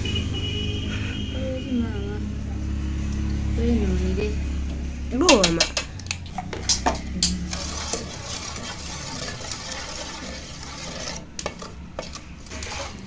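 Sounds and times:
spoon stirring wet batter: 4.6s - 13.0s
spoon knocking metal bowl: 5.2s - 5.9s.

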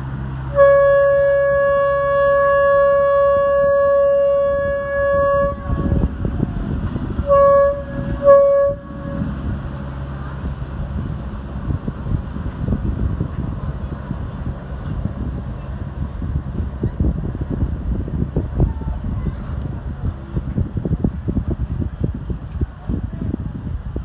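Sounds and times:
low engine rumble: 0.0s - 24.0s
boat horn blasts: 0.4s - 10.5s.

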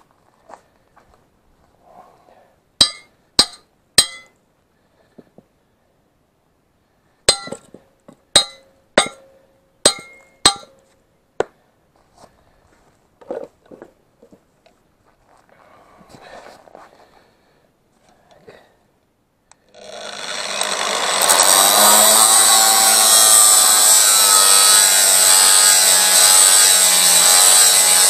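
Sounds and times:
hammer blows on steel: 2.8s - 4.3s, 7.3s - 7.7s.

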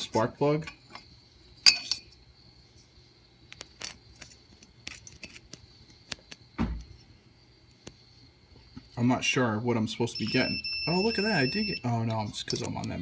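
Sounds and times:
dull thump: 6.6s - 6.9s.

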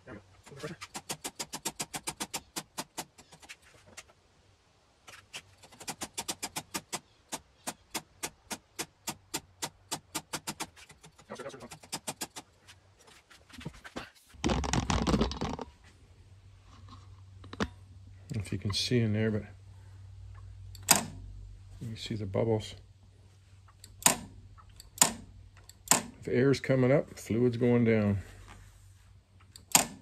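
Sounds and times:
clutch lever clicking: 20.7s - 21.2s, 29.5s - 30.0s.

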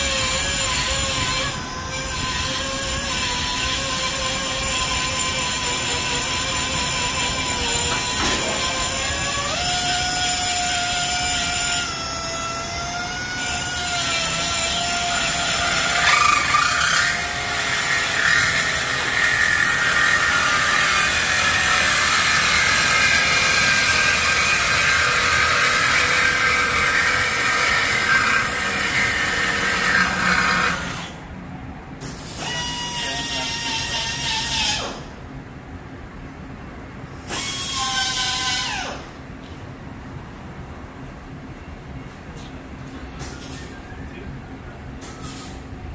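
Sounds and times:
power tool whining: 0.0s - 31.2s.

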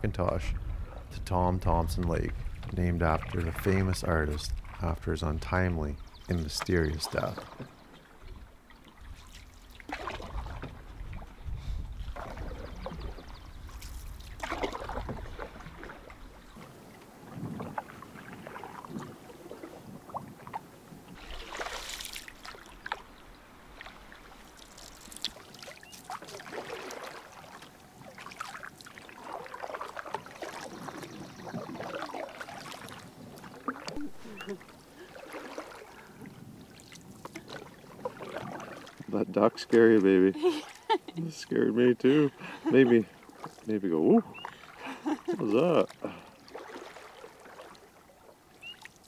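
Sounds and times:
wind on microphone: 0.0s - 7.4s, 9.9s - 21.5s, 30.6s - 34.6s
paddles splashing in water: 0.6s - 49.0s.

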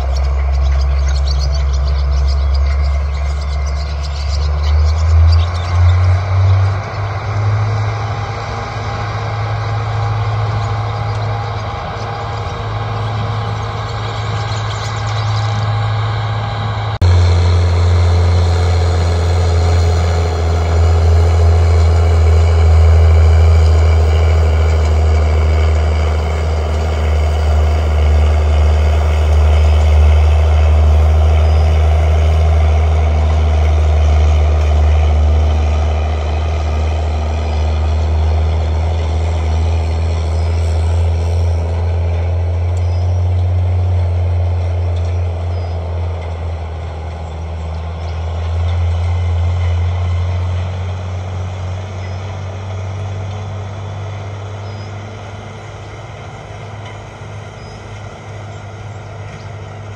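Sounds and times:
tractor diesel engine droning: 0.0s - 59.9s.

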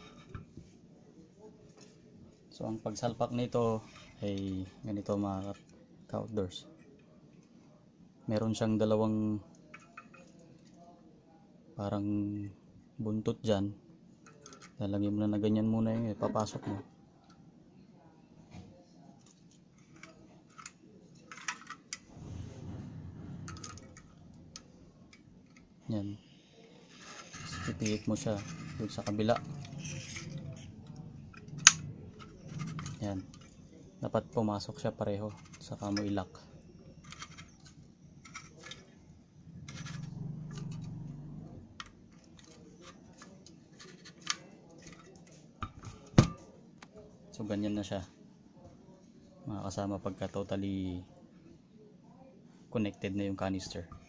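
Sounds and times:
low handling rumble: 22.1s - 25.1s, 27.8s - 34.4s
metal clicks and scraping: 26.8s - 33.8s, 35.3s - 36.1s, 36.8s - 46.4s.

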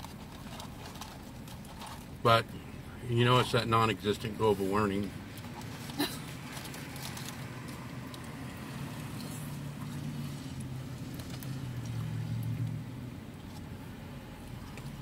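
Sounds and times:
paper rustling: 5.4s - 7.9s.

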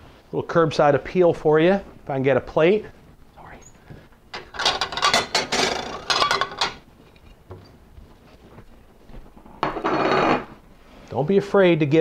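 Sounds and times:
dishes and utensils clinking: 4.3s - 7.3s.

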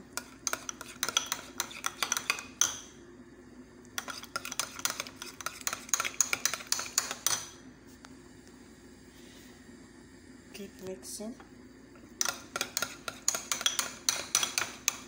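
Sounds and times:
spoon scraping and clinking glass bowl: 0.2s - 2.7s, 4.0s - 7.2s.

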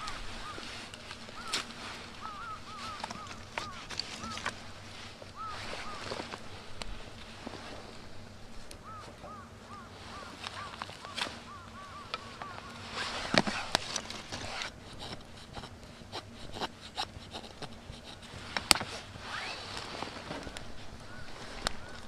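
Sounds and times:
knife scraping wood: 12.9s - 20.2s.

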